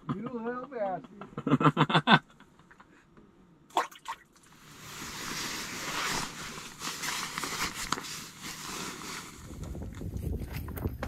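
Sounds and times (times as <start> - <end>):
jacket rustling and handling: 4.5 - 9.9.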